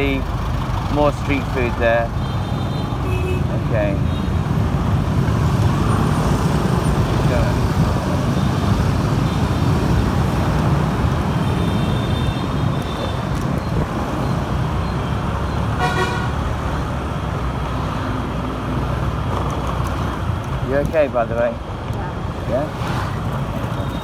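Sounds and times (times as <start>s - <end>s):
scooter engine and road noise: 0.0s - 24.0s
vehicle horn beep: 15.8s - 16.3s.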